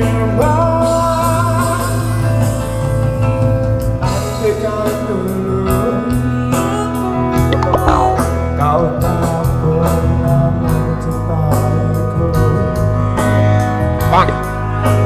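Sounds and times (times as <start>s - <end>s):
man singing into microphone: 0.0s - 2.2s, 4.0s - 7.1s, 7.8s - 13.1s
live band playing pop ballad: 0.0s - 15.0s
saxophone: 6.1s - 8.5s.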